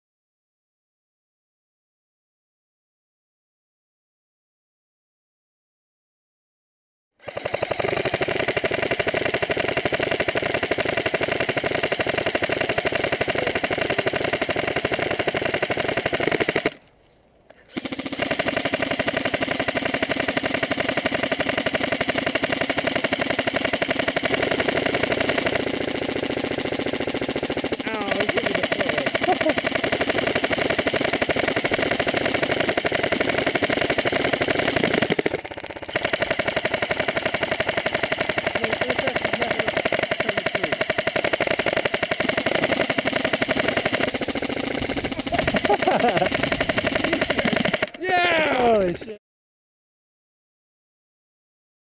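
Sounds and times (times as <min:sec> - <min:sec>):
airsoft rifle firing full-auto: 0:07.2 - 0:16.8, 0:17.7 - 0:48.9.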